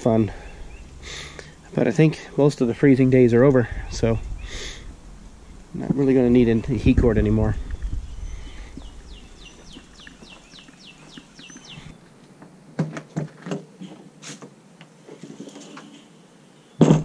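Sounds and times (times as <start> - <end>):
songbird whistling: 7.7 - 12.0.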